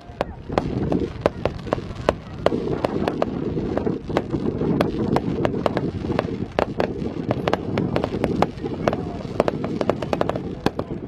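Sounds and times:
fireworks cracking and banging: 0:00.0 - 0:11.0.

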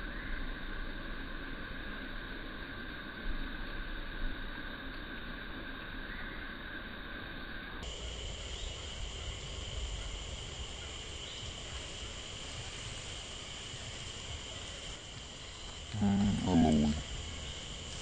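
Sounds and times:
high-pitched insect drone: 0:00.0 - 0:18.0
background hiss: 0:07.6 - 0:18.0.

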